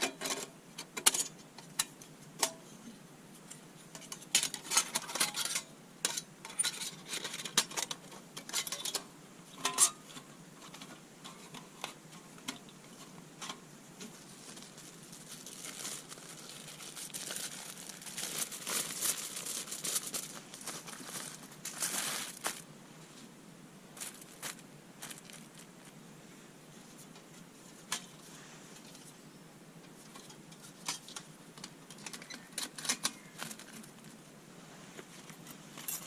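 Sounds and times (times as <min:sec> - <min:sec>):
metal stove panels clinking: 0:06.6 - 0:10.0
aluminium foil crinkling: 0:13.4 - 0:22.7, 0:24.0 - 0:26.0, 0:30.1 - 0:34.2.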